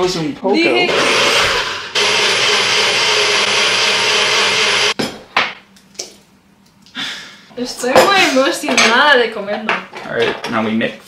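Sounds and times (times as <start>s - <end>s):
blender motor running: 0.7s - 5.0s.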